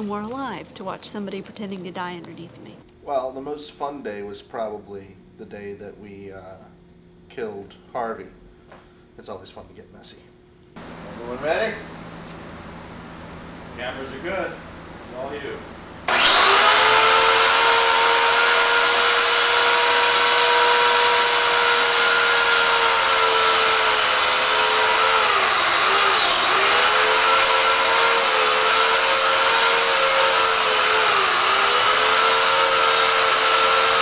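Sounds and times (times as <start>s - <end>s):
power tool motor whining: 10.8s - 34.0s.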